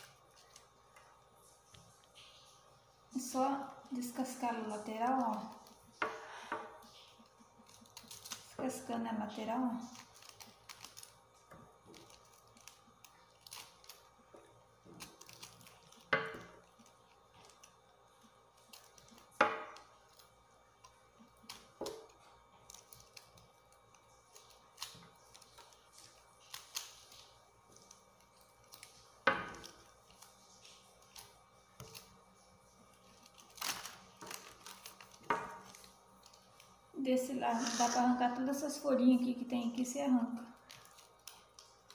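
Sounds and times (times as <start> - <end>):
knife cutting and scraping: 37.5 - 38.2.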